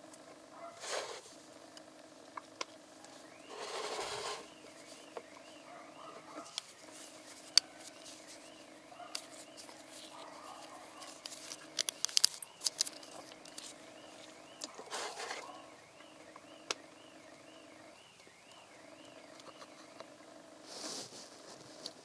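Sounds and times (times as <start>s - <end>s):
steady low hum: 0.0s - 22.0s
gloved fingers rustling: 3.1s - 15.6s.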